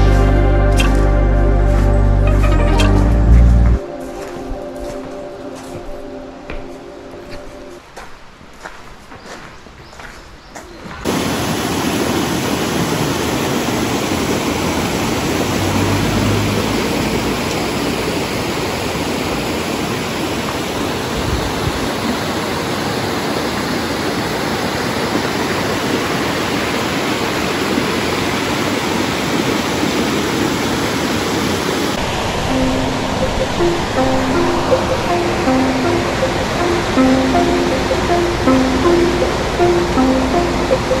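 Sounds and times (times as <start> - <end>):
stream rushing over rocks: 11.0 - 41.0.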